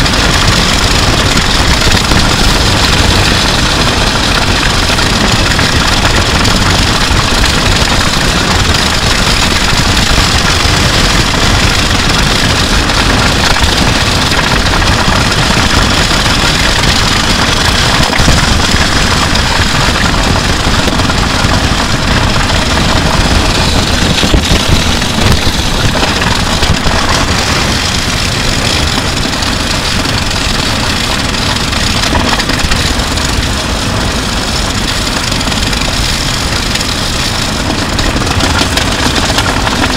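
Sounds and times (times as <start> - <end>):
drum kit rattling on road: 0.0 - 39.9.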